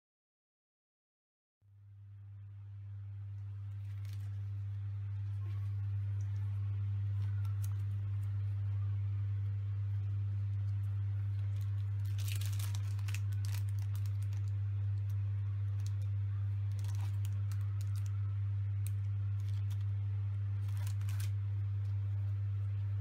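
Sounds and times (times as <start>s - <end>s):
steady low hum: 1.6s - 23.0s
plastic packaging crinkling: 3.7s - 8.4s, 10.4s - 22.1s.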